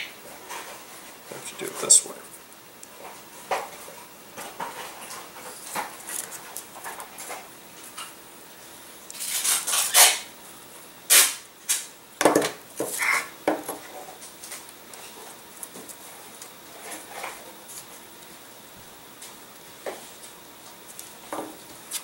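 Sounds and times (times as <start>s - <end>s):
sharp knocks and scrapes: 9.2s - 10.3s.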